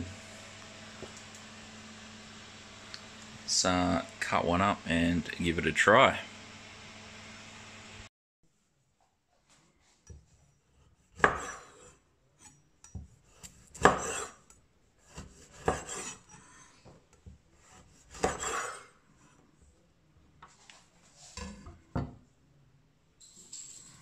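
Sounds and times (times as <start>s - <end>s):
knife chopping on cutting board: 11.2s - 11.8s, 13.0s - 14.4s, 15.0s - 16.2s, 17.6s - 18.8s
knife slicing sausage: 13.1s - 14.4s, 15.0s - 16.6s, 17.6s - 18.9s
knife knocks and scrapes: 21.2s - 22.2s.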